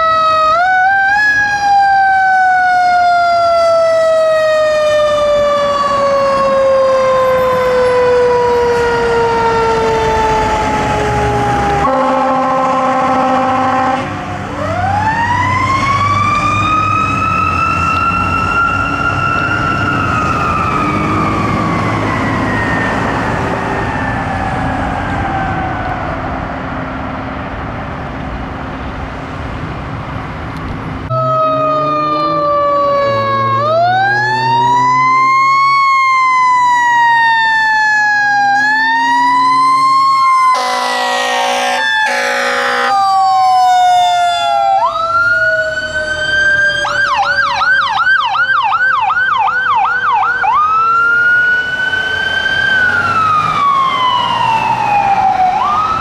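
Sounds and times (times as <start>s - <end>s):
siren winding down: 0.0s - 26.6s, 31.1s - 56.0s
siren wailing up and down: 0.0s - 26.7s, 31.1s - 56.0s
truck engine and road rumble: 0.0s - 56.0s
air horn blasts: 11.8s - 14.2s, 40.5s - 43.0s
siren fast yelp: 31.1s - 56.0s.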